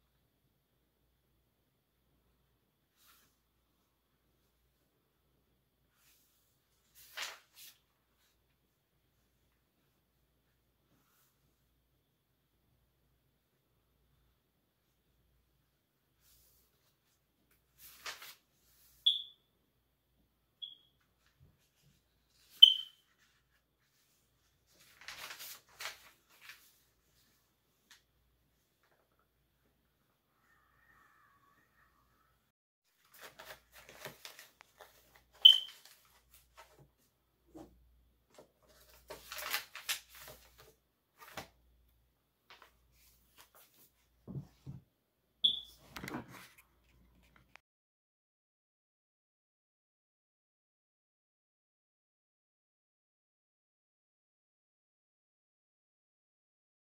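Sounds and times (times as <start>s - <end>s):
rustling and handling noises: 5.9s - 8.6s, 16.2s - 19.0s, 21.0s - 29.3s, 32.9s - 41.8s, 42.4s - 44.9s, 45.8s - 47.6s
short high-pitched chirps: 19.0s - 19.4s, 20.6s - 20.9s, 22.6s - 23.0s, 35.4s - 35.8s, 45.4s - 45.8s
short high squeak: 22.6s - 23.0s.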